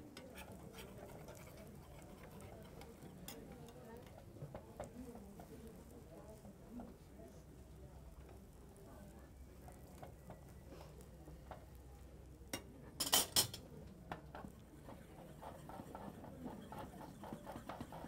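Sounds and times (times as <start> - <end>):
metal spoon scraping a frying pan: 0.1 - 5.0, 14.4 - 18.0
spoon clinking on a pan: 0.1 - 5.0, 12.5 - 13.7.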